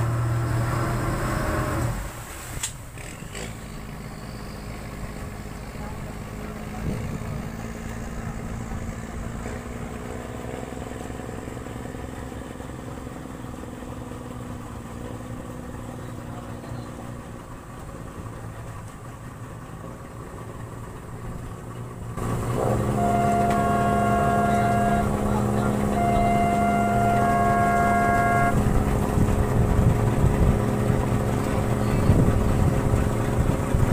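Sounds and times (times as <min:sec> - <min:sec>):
boat engine idling: 0:00.0 - 0:33.9
higher steady tones: 0:22.2 - 0:32.1.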